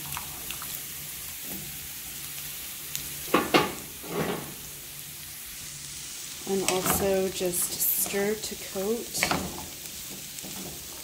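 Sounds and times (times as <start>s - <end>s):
vegetables sizzling in a frying pan: 0.0s - 11.0s
scraping in a pan: 3.4s - 4.6s.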